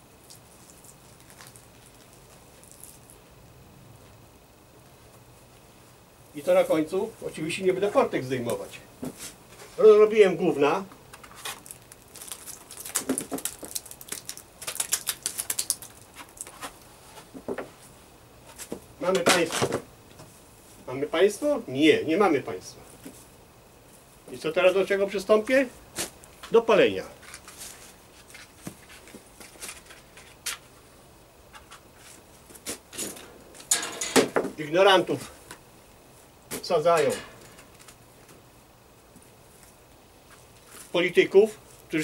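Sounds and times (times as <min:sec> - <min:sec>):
bag crackling and rustling: 0:11.2 - 0:16.8.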